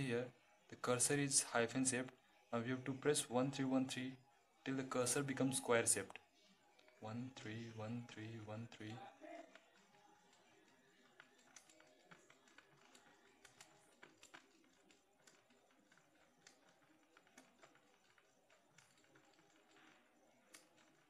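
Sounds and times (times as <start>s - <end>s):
calculator keys clicking: 8.7s - 21.0s.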